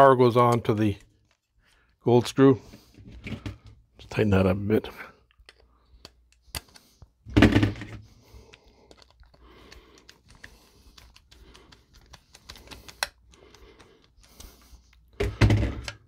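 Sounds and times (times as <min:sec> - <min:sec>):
plastic fixture being handled: 0:02.7 - 0:03.8
screwdriver clicking and scraping: 0:05.4 - 0:07.2, 0:08.4 - 0:15.2.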